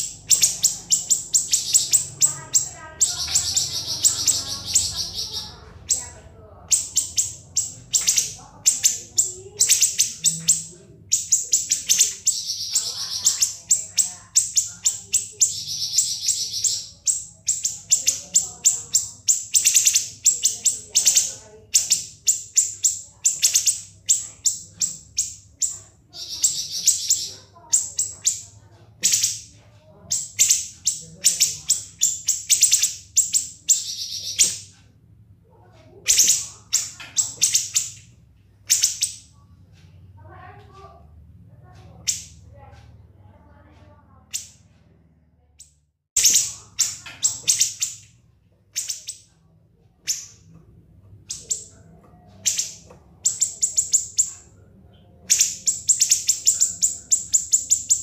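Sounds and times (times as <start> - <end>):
songbird singing rapid trills: 0.0 - 29.5, 30.1 - 34.7, 36.0 - 38.1, 51.2 - 58.0
faint low hum: 0.0 - 58.0.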